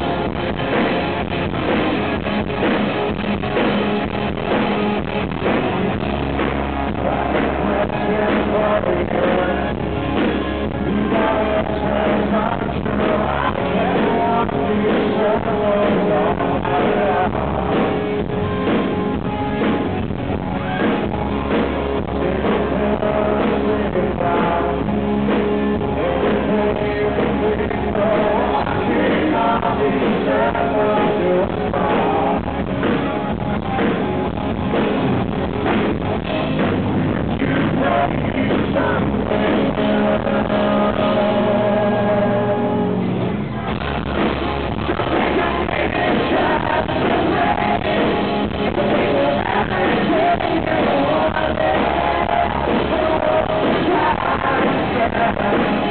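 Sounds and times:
rock band playing live: 0:00.0 - 0:55.9
male singer: 0:06.0 - 0:18.5, 0:20.6 - 0:33.1, 0:37.2 - 0:55.9.

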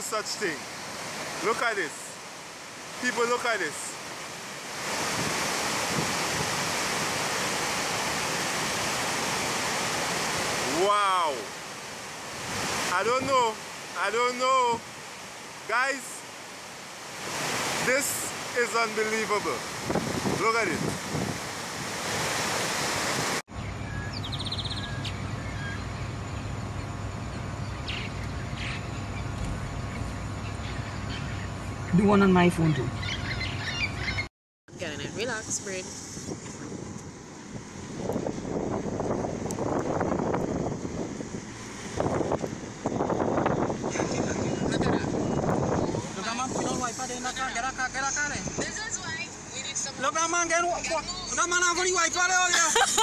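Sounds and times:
waterfall rushing: 0:00.0 - 0:23.4
bird trilling: 0:32.8 - 0:34.3.

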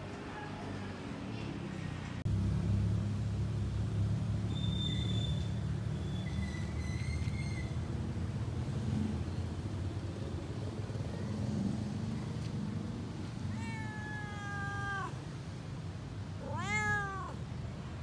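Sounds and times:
cat meowing: 0:13.5 - 0:15.3, 0:16.4 - 0:17.5.

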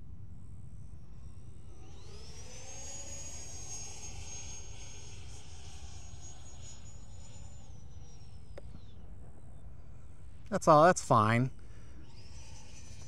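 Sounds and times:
electric ducted fan whine: 0:00.0 - 0:13.0.

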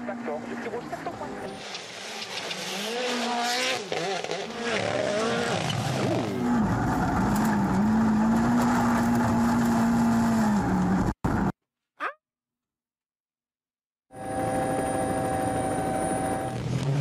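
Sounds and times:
rally car engine accelerating: 0:00.3 - 0:11.4.

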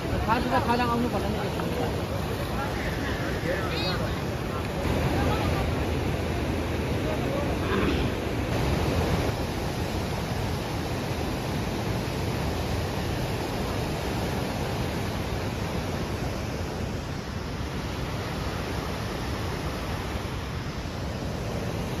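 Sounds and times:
river rapids rushing: 0:00.0 - 0:22.0.

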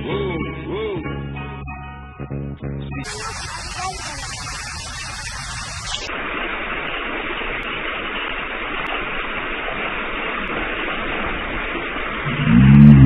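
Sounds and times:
music: 0:00.0 - 0:03.0
outdoor background hiss: 0:03.1 - 0:13.0.

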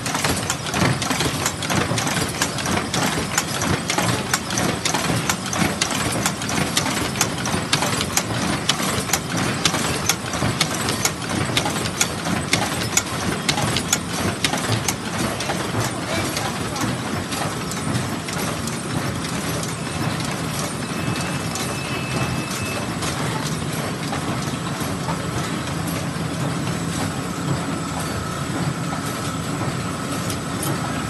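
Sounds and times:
sharp machine clicks: 0:00.0 - 0:25.2
machine mechanical clatter: 0:00.0 - 0:31.0.

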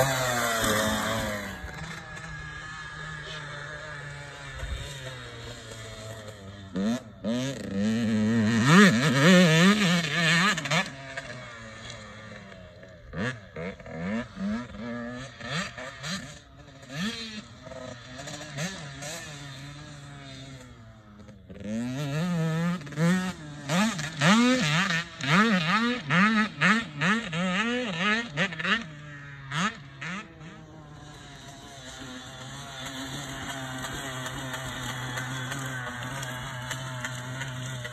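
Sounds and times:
dirt bike engine revving: 0:00.0 - 0:37.9.

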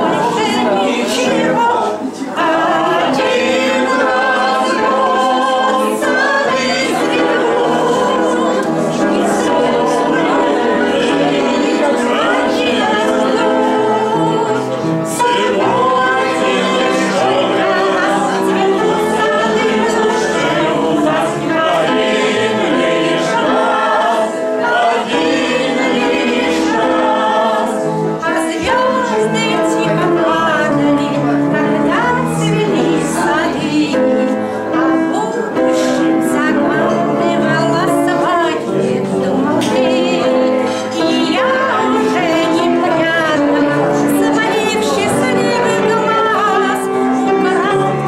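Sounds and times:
group of voices singing: 0:00.0 - 0:48.0.

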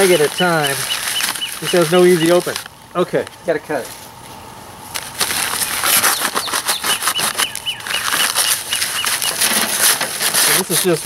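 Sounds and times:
utility knife slitting paper bag: 0:00.0 - 0:02.6, 0:05.1 - 0:11.0
stiff paper crackling and rustling: 0:00.0 - 0:02.7, 0:04.9 - 0:11.0.

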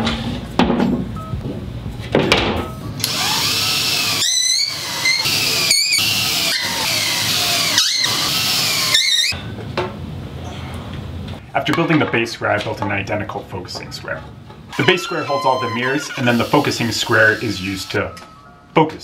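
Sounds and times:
cordless drill driving screws: 0:03.0 - 0:09.3, 0:15.5 - 0:17.9.

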